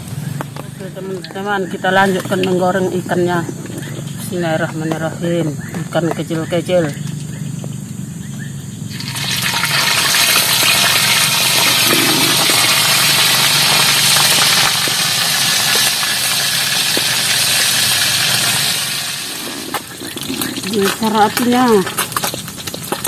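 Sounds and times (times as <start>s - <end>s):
fish sizzling in hot oil: 8.9s - 23.0s.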